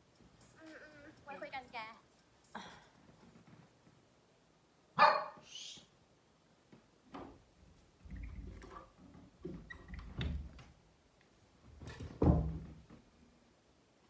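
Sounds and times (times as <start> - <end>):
dull thumps and knocks: 11.7 - 13.1.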